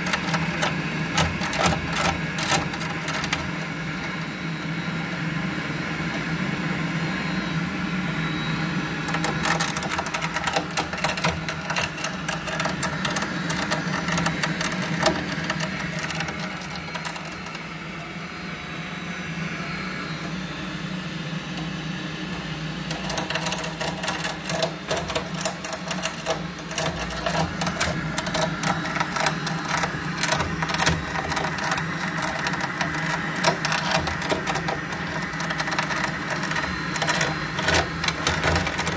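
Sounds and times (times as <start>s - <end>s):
fast mechanical rattling: 0.0s - 4.3s, 9.0s - 17.7s, 22.3s - 38.9s
boiler humming: 0.0s - 38.9s.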